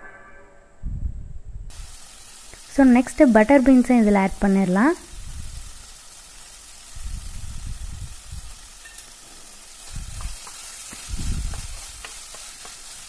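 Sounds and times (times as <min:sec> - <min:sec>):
vegetables sizzling in oil: 0:01.7 - 0:13.0
wooden spoon stirring: 0:09.8 - 0:13.0.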